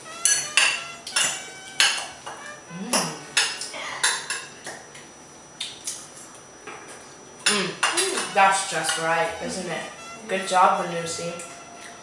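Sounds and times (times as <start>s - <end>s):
cutlery clinking on ceramic bowl: 0.2s - 2.4s, 7.4s - 9.2s.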